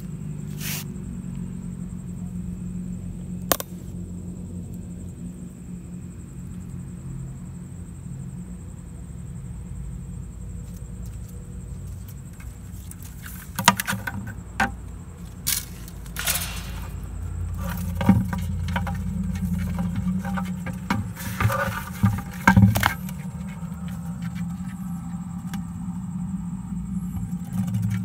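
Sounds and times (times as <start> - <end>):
rustle: 0.0 - 1.0, 15.1 - 25.6.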